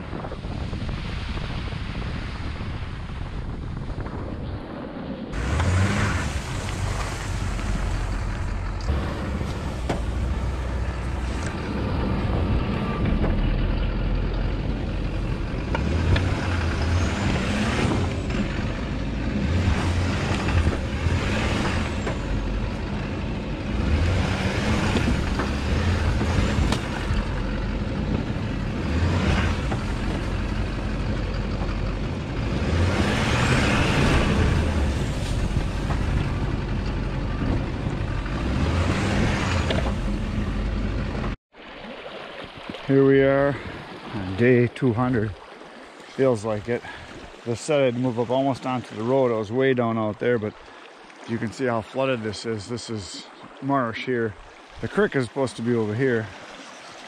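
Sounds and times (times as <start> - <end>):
tyres churning through snow: 0.0 - 41.4, 46.1 - 50.1
diesel engine running under load: 5.4 - 41.4.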